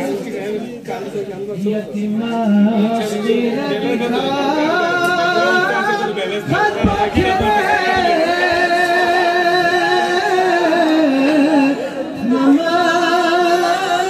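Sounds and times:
man singing unaccompanied: 1.6s - 14.0s
dull thumps: 6.5s - 9.2s.

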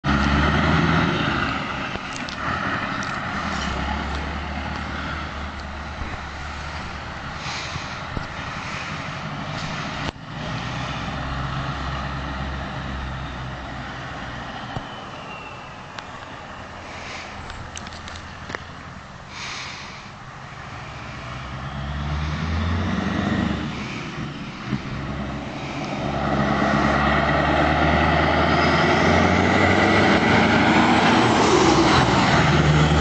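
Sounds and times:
truck diesel engine running: 0.0s - 14.8s.

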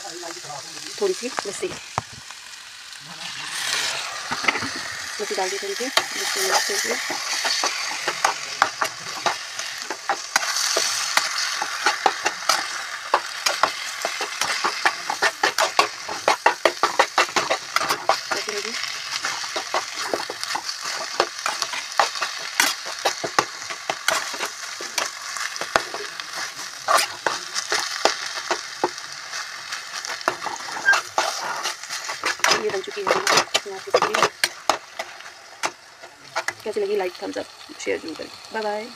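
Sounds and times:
food sizzling: 0.0s - 38.9s
spatula scraping a pan: 3.5s - 36.6s.

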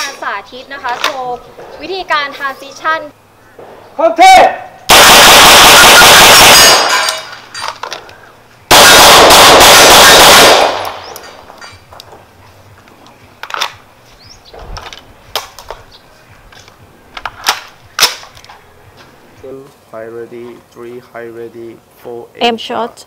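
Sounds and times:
rapid gunfire: 8.7s - 10.9s.

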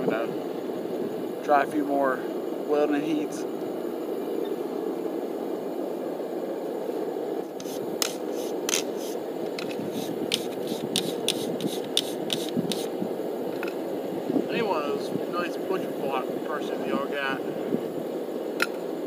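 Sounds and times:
steady rushing noise: 0.0s - 19.0s.

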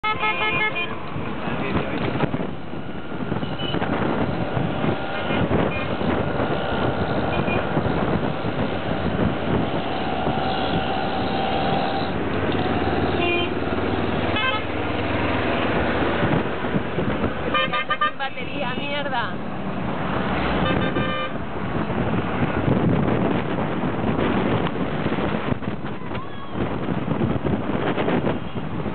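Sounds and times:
horn toots: 0.0s - 1.0s, 7.2s - 7.8s, 13.0s - 13.6s, 14.3s - 14.8s, 17.5s - 18.2s, 20.6s - 21.4s
road and wind noise: 0.0s - 28.9s.

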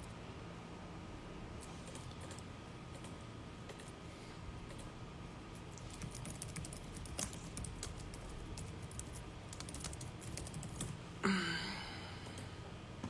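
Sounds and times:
laptop keyboard typing: 5.8s - 11.0s.

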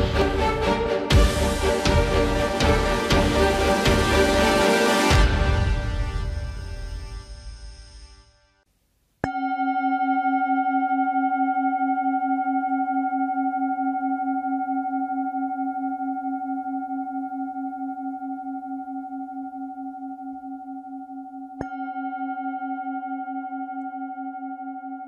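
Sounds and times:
singing bowl ringing: 9.2s - 25.0s.

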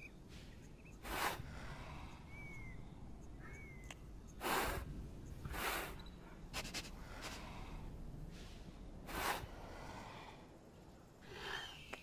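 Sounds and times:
faint chirps: 0.0s - 6.5s, 10.7s - 12.0s
soft clicks: 3.2s - 4.4s.

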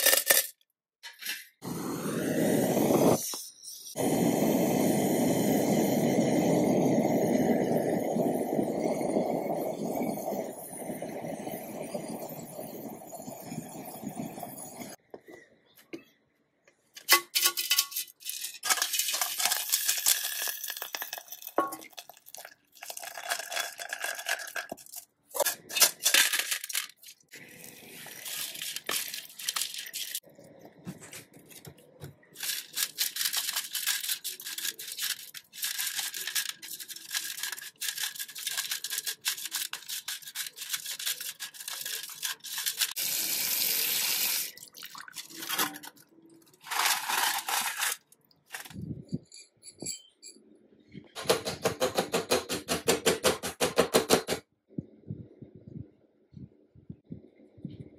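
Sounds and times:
brush scrubbing: 32.4s - 43.0s.

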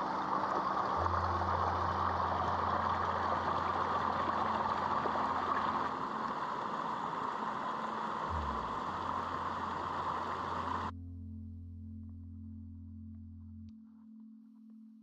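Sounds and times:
stream rushing over rocks: 0.0s - 10.9s.

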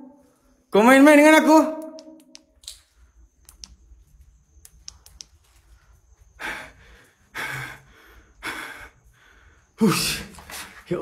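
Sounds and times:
faint sharp clicks: 1.8s - 3.8s, 4.6s - 5.6s.

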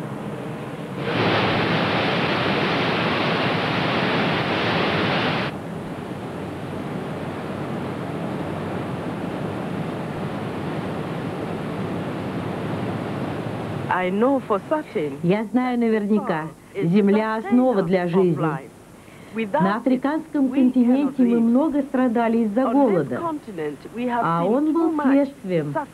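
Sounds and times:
loud hissy rush: 1.0s - 5.6s
river and waterfall rushing: 1.0s - 5.6s.

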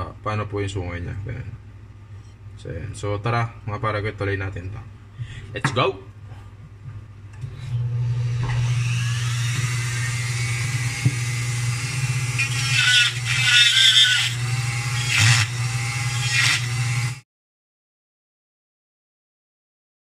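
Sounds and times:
rotary tool grinding wood: 8.6s - 17.2s.

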